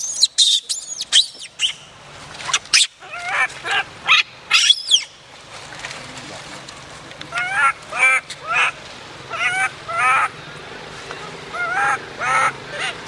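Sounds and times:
infant monkey crying: 7.3 - 10.4, 11.5 - 13.0.

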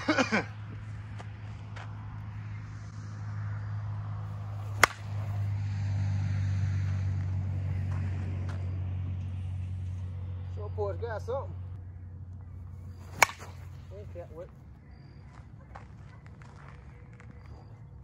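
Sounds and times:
steady low hum: 0.0 - 10.6, 11.5 - 15.0
bat cracking a softball: 4.5 - 5.5, 12.8 - 13.9.

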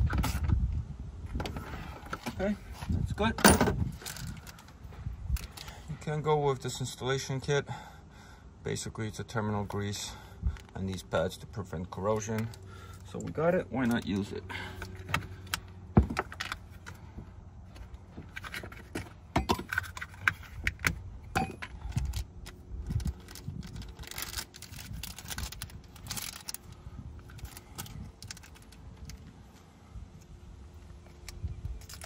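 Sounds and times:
plastic packet crinkling: 22.9 - 29.2.

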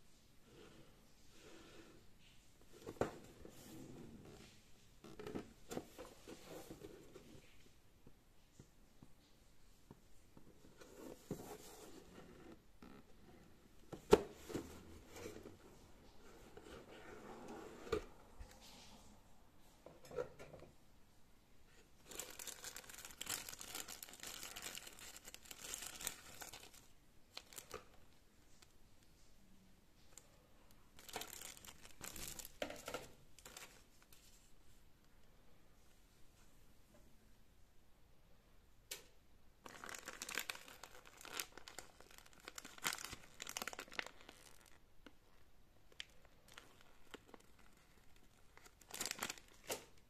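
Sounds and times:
plastic bags crinkling: 22.0 - 28.0, 31.0 - 33.9, 39.6 - 44.8, 45.9 - 50.0.

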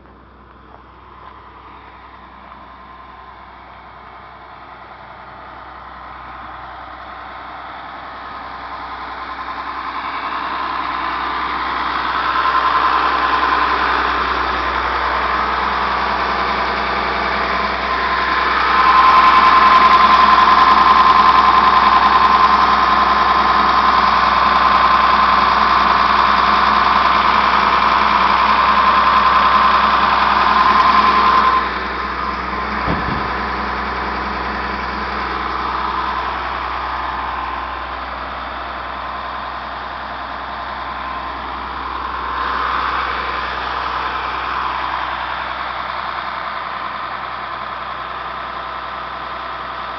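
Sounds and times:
diesel engine idling: 0.0 - 49.9
high whine: 11.8 - 36.5
knock: 32.8 - 33.4.

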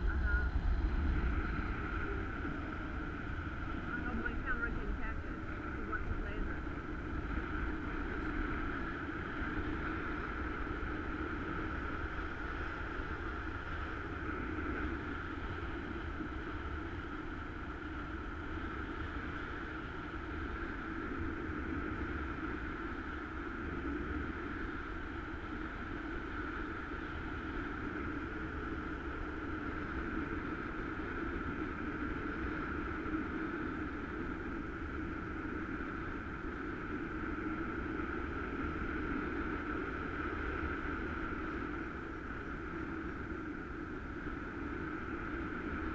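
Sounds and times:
wind rushing over camera: 0.0 - 45.9.

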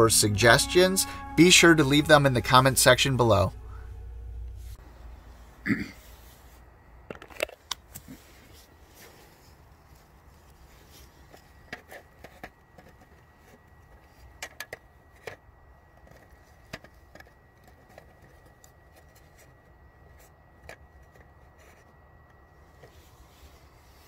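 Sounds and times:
faint high-pitched tone: 0.0 - 5.5
low hum: 0.0 - 5.7
small rustles: 7.8 - 14.4, 22.6 - 24.0.

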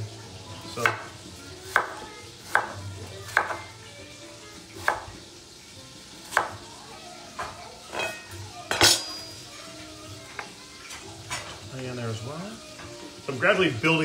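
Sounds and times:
knife chopping on wooden board: 0.8 - 1.1, 1.7 - 3.6, 4.8 - 5.1, 6.3 - 6.6.

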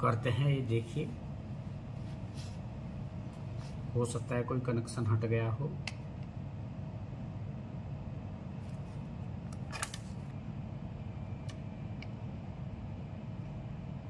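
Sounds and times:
low background hum: 0.0 - 14.0.

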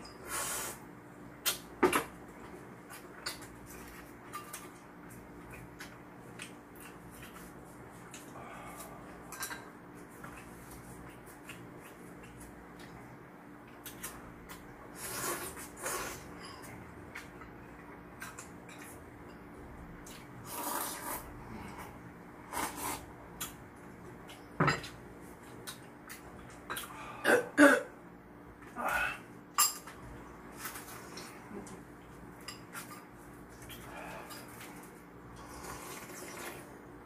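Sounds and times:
noodles slurping: 35.4 - 36.6.

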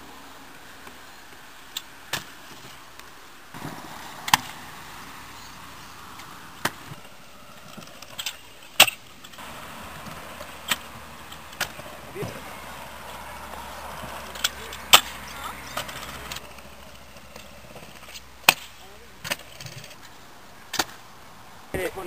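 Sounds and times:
scooter wheels rolling on concrete: 0.0 - 22.0
scooter clacking on landings: 6.2 - 20.0.

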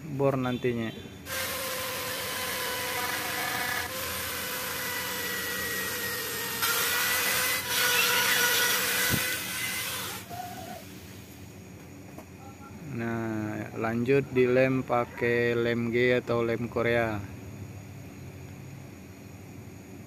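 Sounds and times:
rotary tool motor whine: 1.3 - 11.3.

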